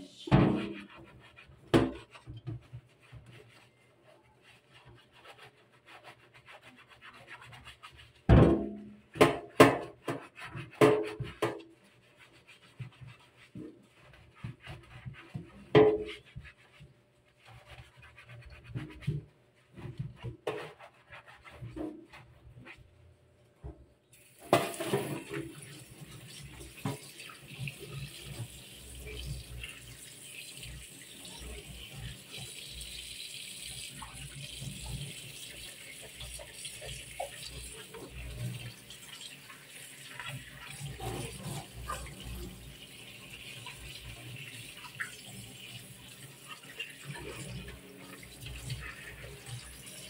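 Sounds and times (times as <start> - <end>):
sponge scrubbing plastic: 0.0 - 50.0
plastic knocking against metal sink: 8.3 - 11.7, 15.6 - 16.2.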